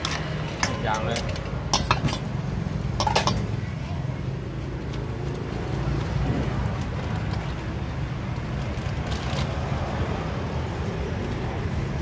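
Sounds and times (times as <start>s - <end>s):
low rumble of street noise: 0.0s - 12.0s
metal ladle clinking on bowl: 0.1s - 2.3s, 3.0s - 3.5s.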